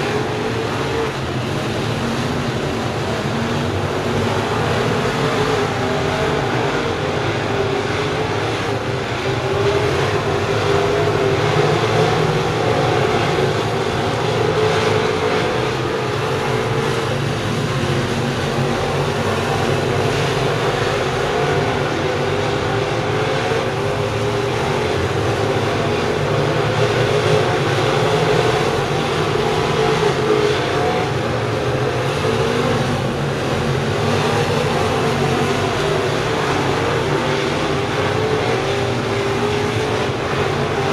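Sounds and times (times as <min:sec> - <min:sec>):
race car engines droning: 0:00.0 - 0:40.9.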